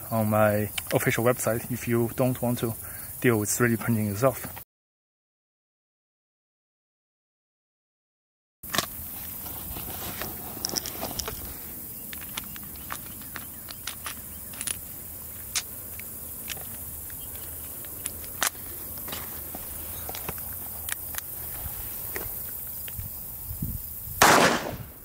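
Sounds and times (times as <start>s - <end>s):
steady background noise: 8.7s - 24.7s.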